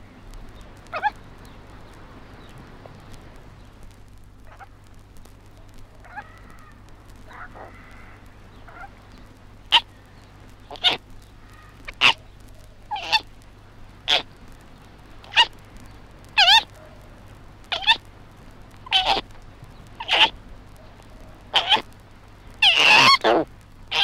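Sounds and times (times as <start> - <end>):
baby koala crying: 12.9 - 13.2, 16.4 - 16.6, 17.7 - 18.0, 18.8 - 19.2, 20.0 - 20.3, 21.5 - 21.8, 22.6 - 24.0.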